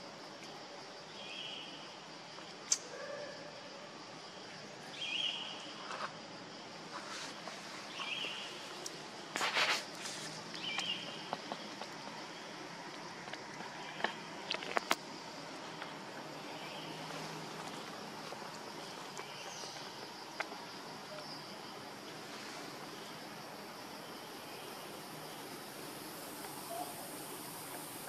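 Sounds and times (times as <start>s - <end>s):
steady hiss: 3.5s - 28.0s
faint chirps: 21.0s - 28.0s.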